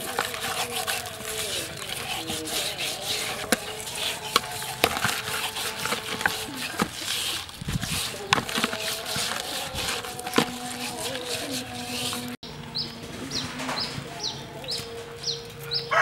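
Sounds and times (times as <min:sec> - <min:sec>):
hands scrubbing salt on fish: 0:00.0 - 0:12.4.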